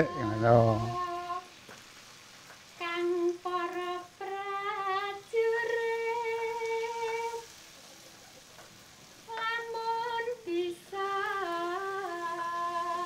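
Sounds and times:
woman humming: 0.0s - 1.5s.

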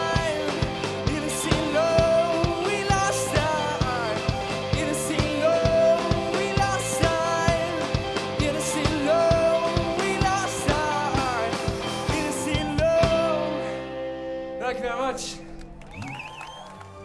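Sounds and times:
drum kit beat: 0.0s - 13.4s
person singing: 0.0s - 14.3s
electric guitars: 0.0s - 17.0s.

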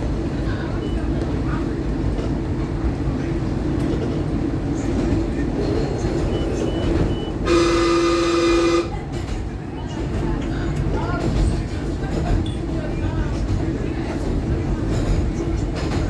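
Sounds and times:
rumble of train wheels on rail: 0.0s - 16.0s
train horn blast: 7.4s - 9.0s.

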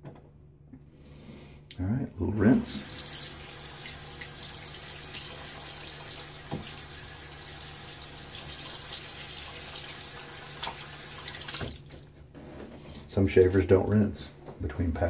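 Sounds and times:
sink tap running: 2.6s - 12.1s
water splashing on face: 2.7s - 12.1s.

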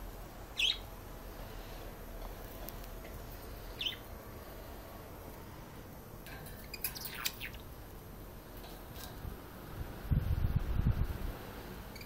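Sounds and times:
parrots chirping and squawking: 0.5s - 0.8s, 3.7s - 4.1s, 6.4s - 7.7s.

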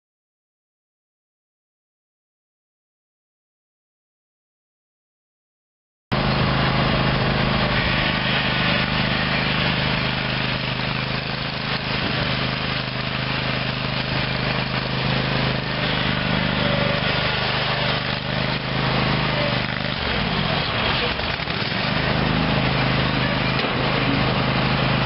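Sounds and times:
lawn mower engine running: 6.1s - 25.0s.

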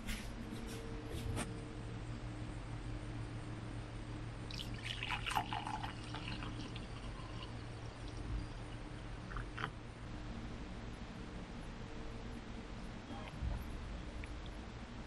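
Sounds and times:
low steady hum: 0.0s - 15.0s
hot coffee pouring into a mug: 4.5s - 9.7s.

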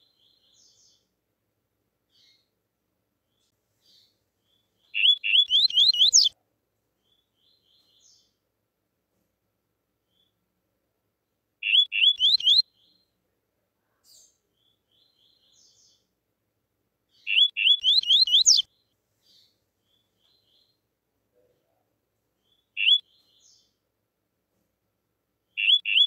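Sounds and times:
faint soft bird notes: 2.1s - 2.6s, 3.2s - 8.5s, 17.1s - 23.9s
bird whistled song phrases: 5.0s - 6.4s, 11.6s - 12.6s, 17.2s - 18.7s, 22.8s - 23.2s, 25.6s - 26.0s.

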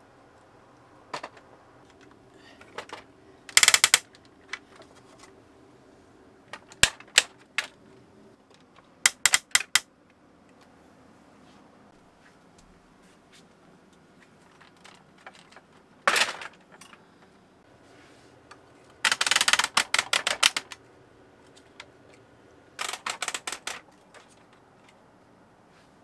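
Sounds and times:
plastic toy handling: 2.6s - 5.4s
rapid clicks: 3.5s - 4.3s, 9.1s - 9.9s, 19.0s - 20.8s, 22.8s - 24.2s.

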